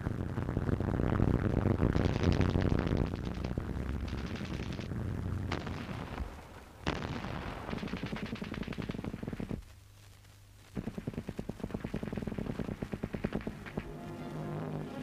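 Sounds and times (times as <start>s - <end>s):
low rumble: 0.0s - 9.5s
machine-gun fire: 4.1s - 4.9s, 5.5s - 9.6s, 10.8s - 13.9s.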